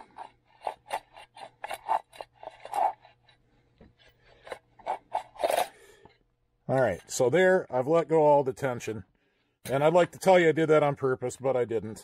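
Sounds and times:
starter rope rasping: 0.0s - 5.8s.

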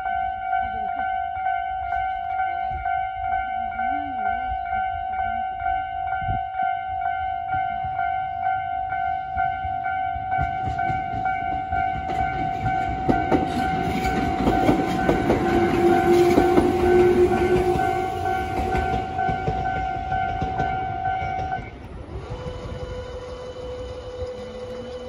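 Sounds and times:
level crossing warning tone: 0.0s - 25.0s
train wheels clattering: 9.4s - 23.0s.

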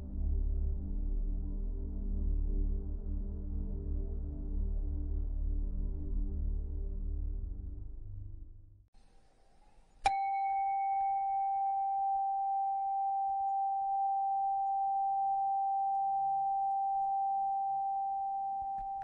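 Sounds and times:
meditation bell ringing: 10.1s - 19.0s.

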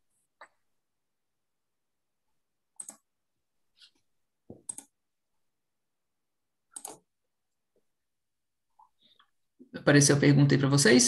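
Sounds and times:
computer clicks: 2.8s - 3.1s, 4.6s - 5.0s, 6.7s - 7.1s.

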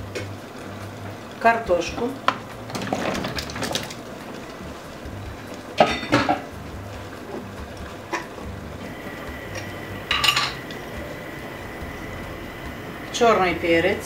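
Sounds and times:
low steady hum: 4.1s - 14.0s
metal utensils clinking on pot: 5.8s - 6.5s, 10.1s - 10.7s.

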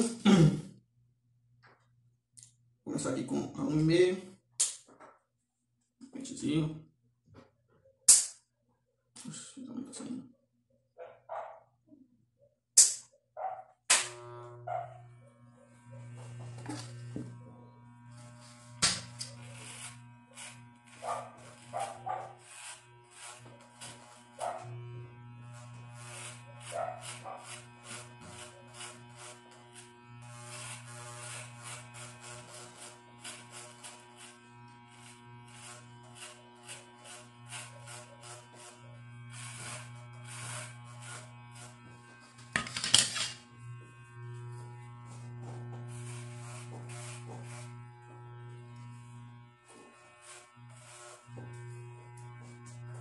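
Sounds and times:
electric hair clipper buzzing: 13.4s - 53.0s
clipper blades rasping through hair: 18.1s - 53.0s.

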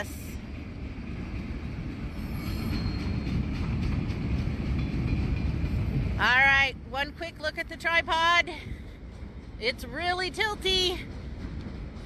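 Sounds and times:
train wheels rumbling on rail: 0.0s - 12.0s
faint high wheel squeal: 2.1s - 3.6s.

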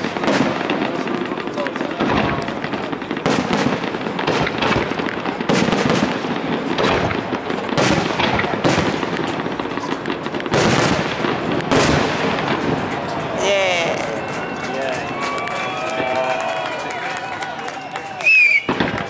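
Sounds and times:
firework shells bursting: 0.0s - 16.8s
smaller firework reports: 0.0s - 19.0s.

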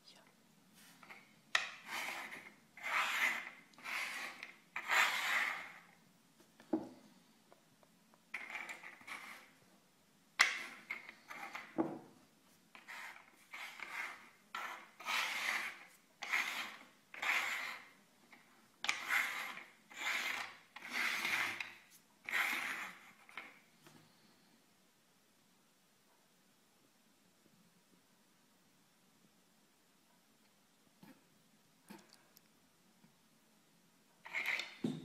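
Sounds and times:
shells scraping on wooden table: 0.9s - 6.0s, 8.3s - 9.6s, 10.4s - 12.1s, 12.7s - 23.7s, 34.2s - 35.0s.

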